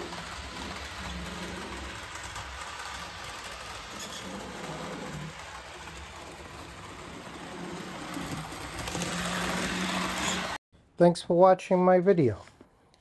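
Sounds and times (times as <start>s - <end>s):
model train motor whirring: 0.0s - 10.6s.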